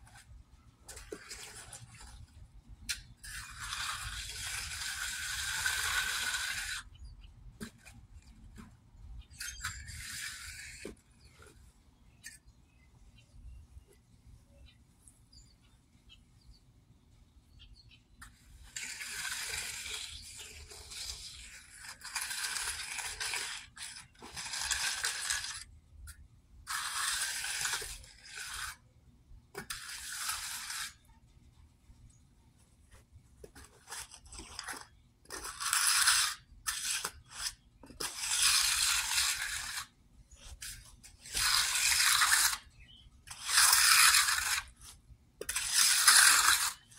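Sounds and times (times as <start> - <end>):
trowel scraping wet concrete: 0.9 - 12.4, 18.2 - 28.9, 29.6 - 31.2, 33.4 - 46.9.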